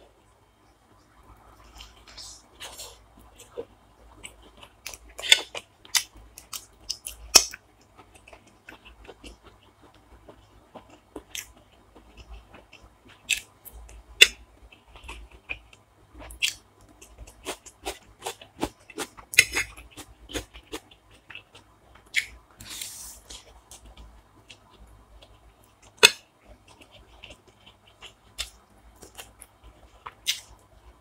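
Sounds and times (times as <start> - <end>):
chewing and crunching food: 1.1 - 31.0.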